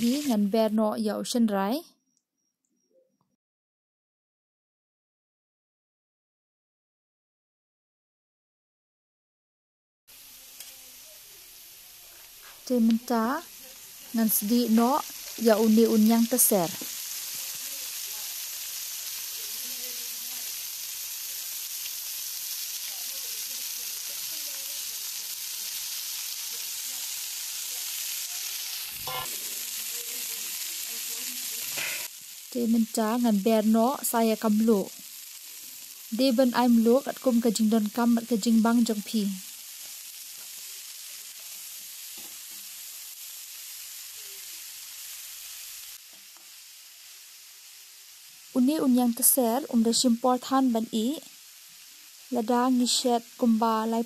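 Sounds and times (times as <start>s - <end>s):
oil sizzling in wok: 0.0s - 1.4s, 10.1s - 54.0s
metal spatula scraping: 28.9s - 29.6s.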